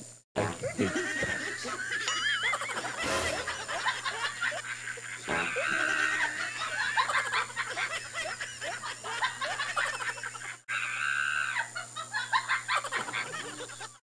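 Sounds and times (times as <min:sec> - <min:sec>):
high-pitched laughter over phone: 0:00.5 - 0:14.0.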